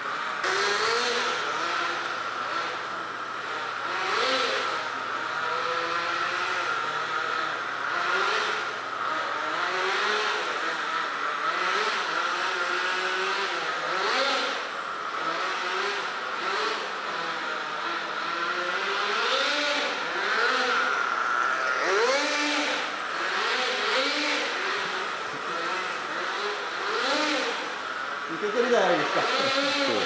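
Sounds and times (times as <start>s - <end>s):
small engine revving: 0.0s - 30.0s.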